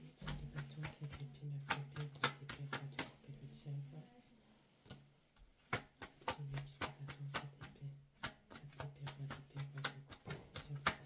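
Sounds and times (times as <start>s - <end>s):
cards being shuffled: 5.6s - 11.0s.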